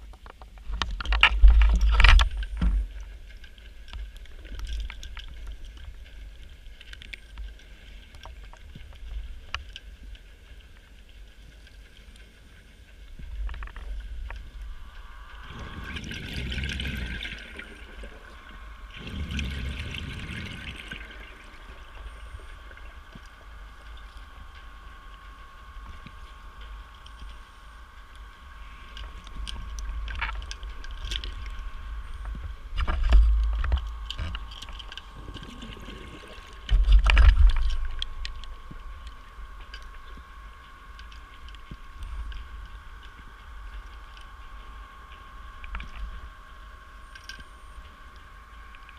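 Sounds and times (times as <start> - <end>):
steady high whine: 0.0 - 48.9
bubbles gurgling underwater: 14.6 - 25.2, 28.5 - 39.3.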